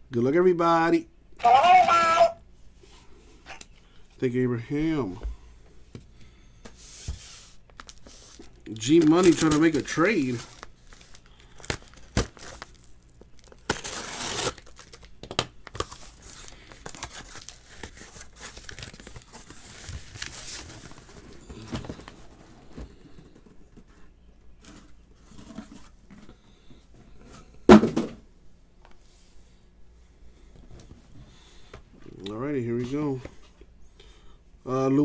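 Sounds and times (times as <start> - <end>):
cardboard tearing and rustling: 7.3 - 22.3.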